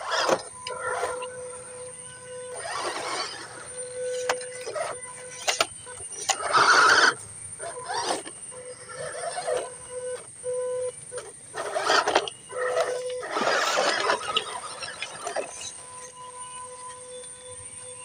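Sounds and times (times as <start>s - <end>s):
small electric motor whining: 0.0s - 18.0s
tyres scraping over rubble: 11.2s - 15.8s.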